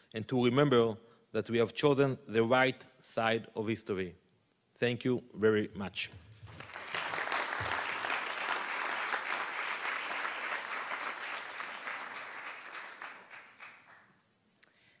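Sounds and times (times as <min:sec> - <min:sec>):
audience applauding: 0:06.5 - 0:14.2.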